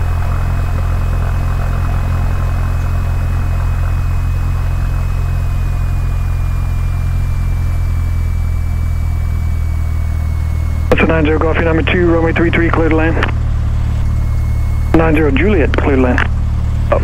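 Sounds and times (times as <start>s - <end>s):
propeller plane engine drone: 0.0s - 17.0s
thin high whine: 0.0s - 17.0s.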